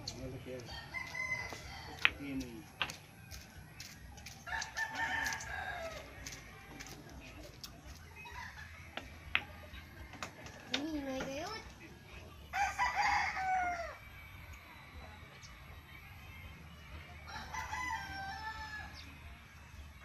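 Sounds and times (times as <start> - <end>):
rooster crowing: 0.7 - 2.4, 4.5 - 6.1, 12.5 - 14.0, 17.3 - 19.0.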